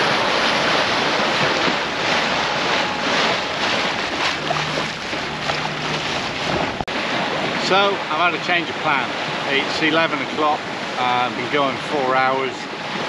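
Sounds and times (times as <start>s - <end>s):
wind on microphone: 0.0s - 7.6s
bow wave rushing along hull: 0.0s - 13.0s.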